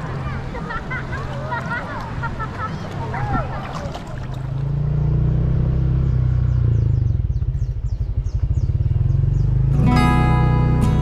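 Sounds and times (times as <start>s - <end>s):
motor engine humming: 4.2s - 11.0s
acoustic guitar music: 9.7s - 11.0s.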